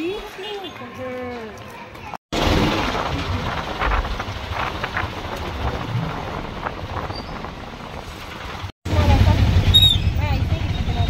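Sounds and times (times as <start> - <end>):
road noise: 0.0 - 11.0
wind buffeting microphone: 2.7 - 9.1.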